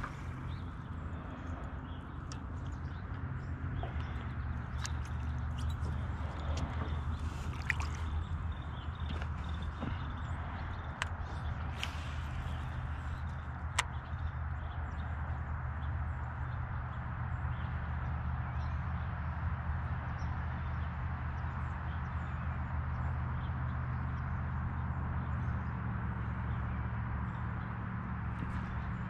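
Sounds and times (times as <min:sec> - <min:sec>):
water splashes: 0:00.0 - 0:13.4
boat motor humming: 0:00.0 - 0:17.7, 0:21.6 - 0:29.0.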